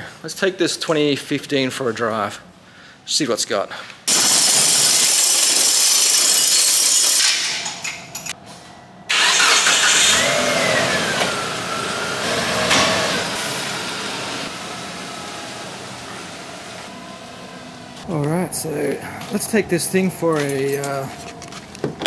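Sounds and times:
vehicle engine starting and running: 9.1s - 21.0s.

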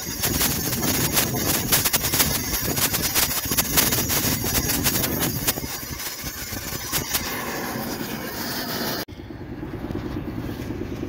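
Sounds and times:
sharp crackles and pops: 0.0s - 7.6s
cutting torch hissing: 0.0s - 9.1s.

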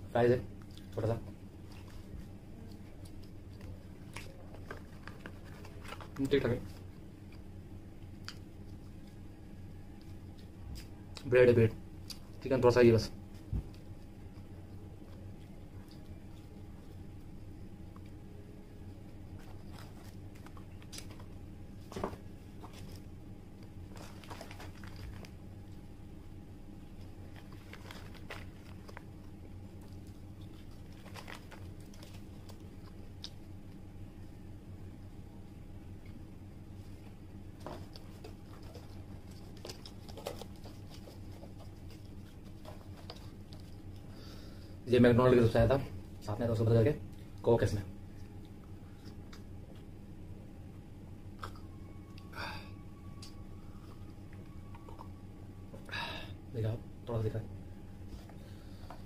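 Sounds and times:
steady low hum: 0.0s - 59.0s
paper packaging crinkling: 1.6s - 6.9s, 19.3s - 25.8s, 26.9s - 33.4s, 37.6s - 44.1s.

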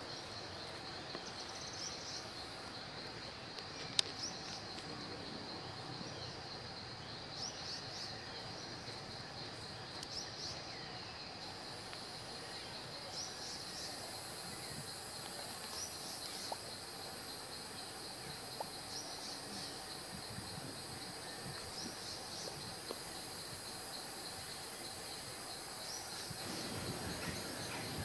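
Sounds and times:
background hiss: 0.0s - 28.0s
insects droning: 0.0s - 28.0s.

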